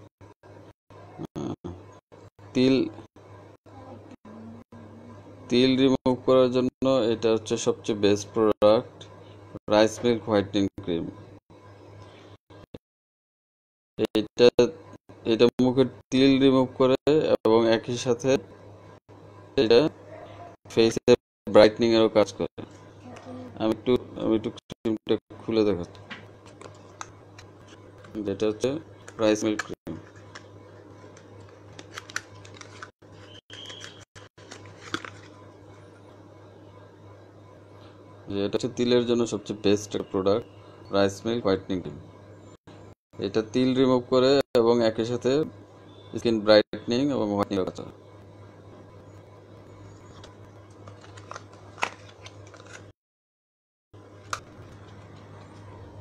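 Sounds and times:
steady low hum: 0.0 - 12.7, 14.0 - 33.4, 34.2 - 52.9, 54.0 - 56.0
wrapping rustling: 31.0 - 35.4, 50.7 - 52.9.

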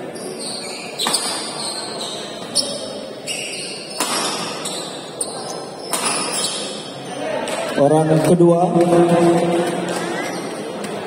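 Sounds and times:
rackets hitting shuttlecock: 3.9 - 4.6, 5.9 - 6.4.

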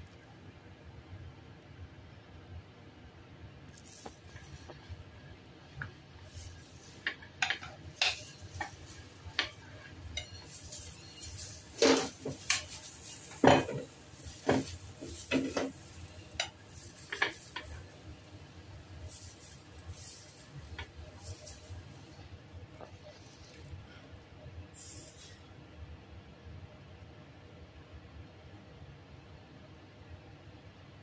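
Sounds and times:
plastic glove rustling: 3.7 - 25.4
ceramic plate and bowl clinking: 6.4 - 17.9.

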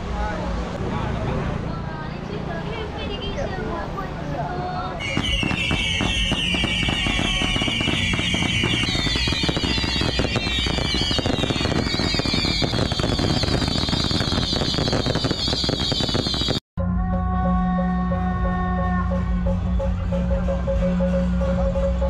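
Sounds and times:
fireworks crackling: 5.0 - 16.6
fireworks whistling: 5.0 - 16.6.

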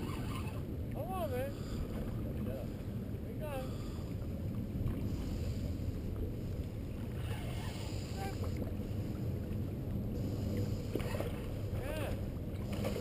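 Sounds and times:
wind rumble on microphone: 0.0 - 13.0
waves lapping against rocks: 10.1 - 13.0.

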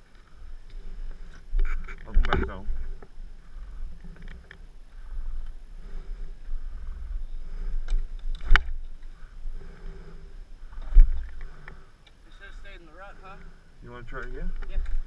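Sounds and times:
wind buffeting camera: 0.0 - 11.9.

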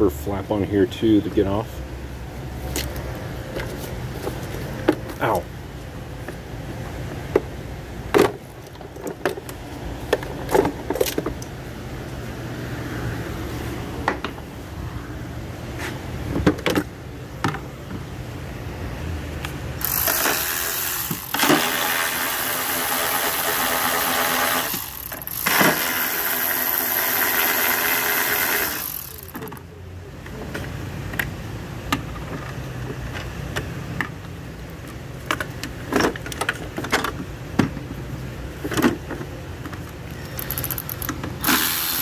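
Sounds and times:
cordless ratchet running: 19.8 - 29.6, 40.2 - 42.0.

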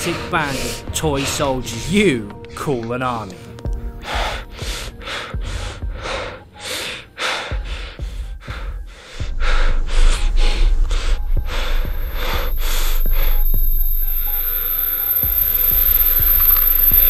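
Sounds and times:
low dark music drone: 0.0 - 17.0
man breathing hard and fast: 3.4 - 13.7.

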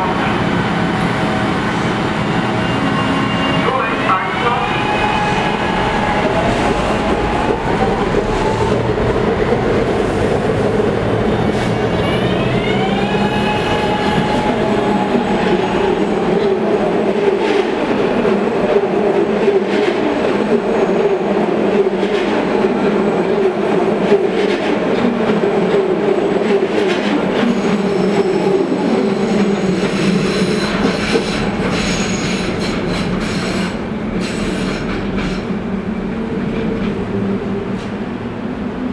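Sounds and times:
train wheels on rails: 21.6 - 38.2.

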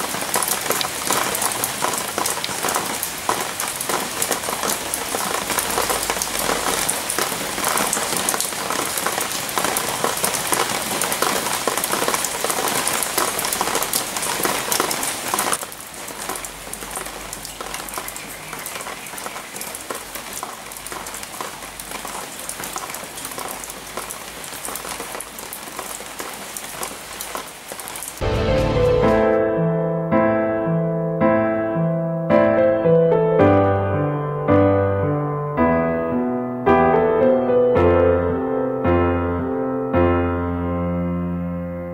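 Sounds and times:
rain patter on leaves: 0.0 - 29.4.

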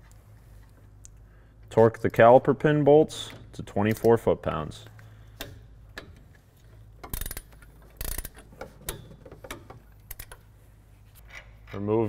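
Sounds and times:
torque wrench ratchet clicking: 7.0 - 9.0.

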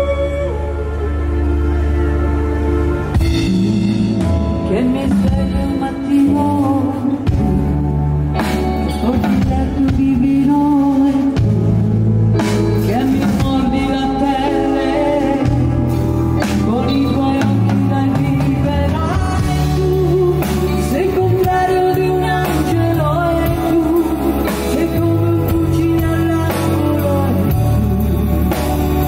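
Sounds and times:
woman singing: 0.0 - 1.8, 4.2 - 29.0
electric bass: 0.0 - 29.0
electric guitars: 0.0 - 29.0
keyboards: 0.0 - 29.0
drum kit: 3.0 - 29.0.

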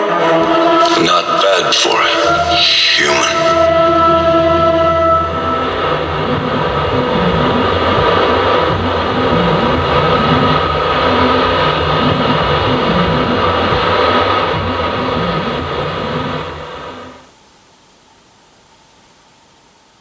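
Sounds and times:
faint hiss: 17.1 - 20.0.

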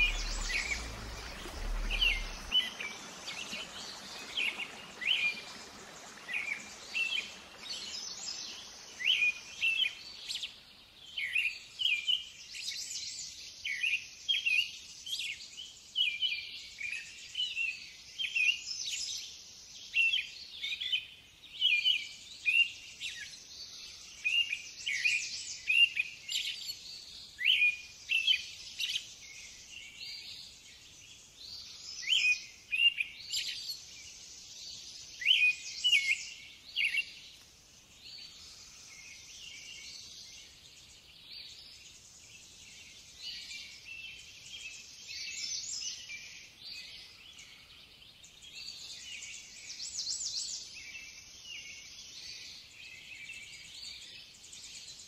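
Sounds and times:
steady high hiss: 0.0 - 10.5
small birds chirping: 0.0 - 12.1.

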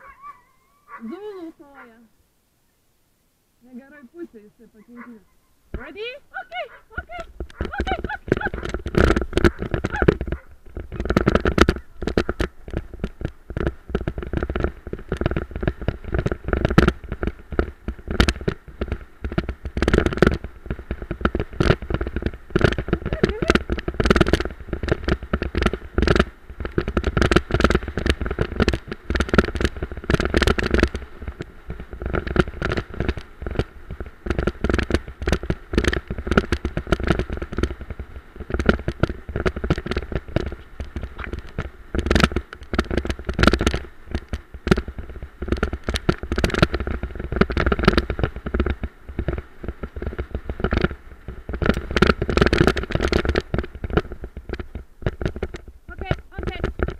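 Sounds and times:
cart rattling and knocking: 6.9 - 50.9.

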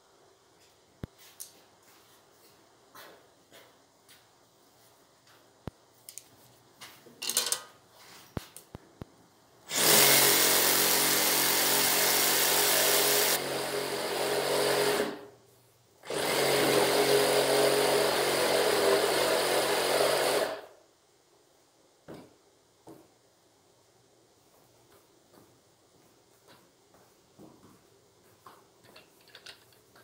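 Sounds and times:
reciprocating saw cutting wood: 9.7 - 15.2.

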